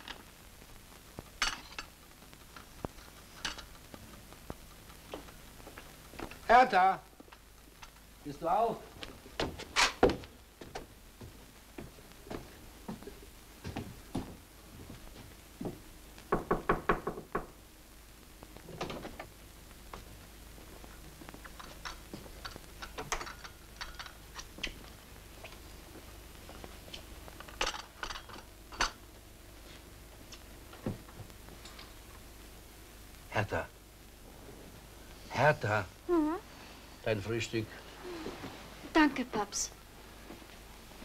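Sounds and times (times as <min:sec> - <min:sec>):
light clicks and taps: 0:01.2 - 0:06.5
knocks on a door: 0:16.3 - 0:17.6.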